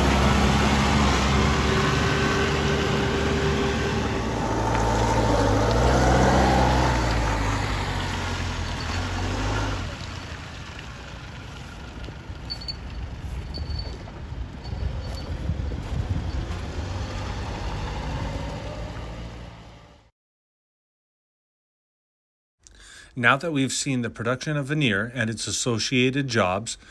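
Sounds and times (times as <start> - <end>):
forklift engine running: 0.0 - 19.8.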